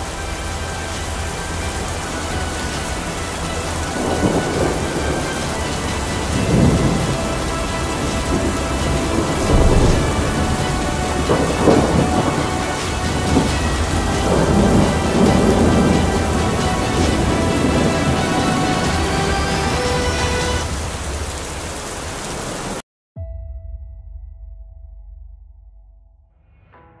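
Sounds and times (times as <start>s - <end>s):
faint musical drone: 0.0s - 21.3s
steady rain: 0.0s - 22.8s
rolls of thunder: 3.9s - 20.0s.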